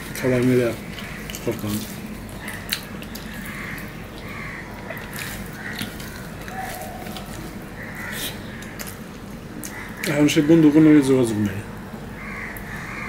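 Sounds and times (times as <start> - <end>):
wet chewing and lip smacks: 0.4 - 10.1.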